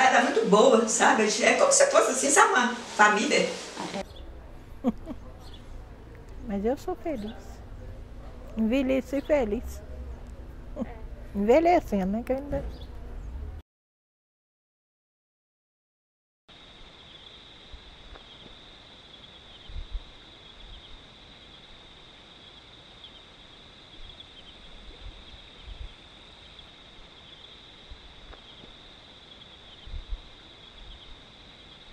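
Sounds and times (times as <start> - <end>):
night insects trilling: 16.5 - 31.9.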